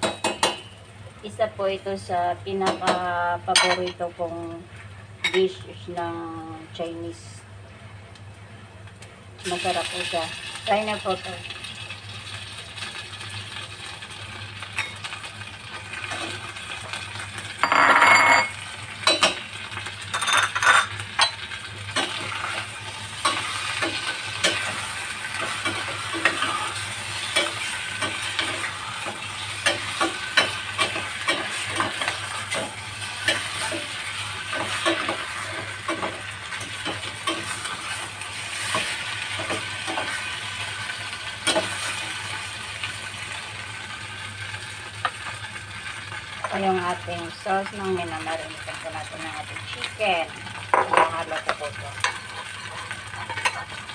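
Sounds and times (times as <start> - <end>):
chicken sizzling in saucepan: 9.4 - 53.9
metal utensil scraping pot: 52.0 - 53.8.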